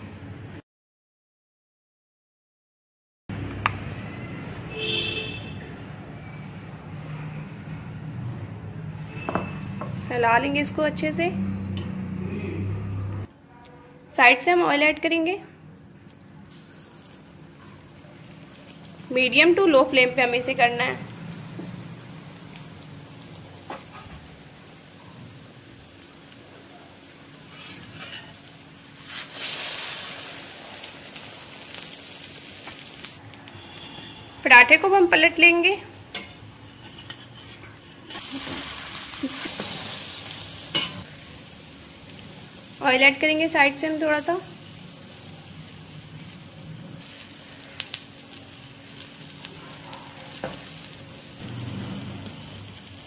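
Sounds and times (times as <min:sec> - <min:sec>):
oil sizzling and crackling: 0:15.8 - 0:53.0.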